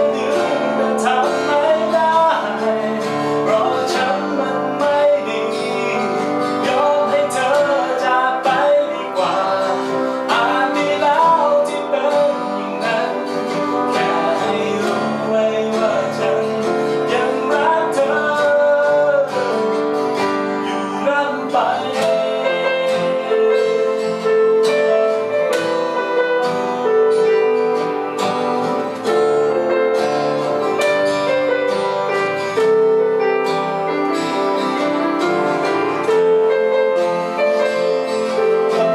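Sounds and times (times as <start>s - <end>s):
man singing: 0.0s - 26.2s, 35.8s - 38.9s
strummed acoustic guitar: 0.0s - 38.9s.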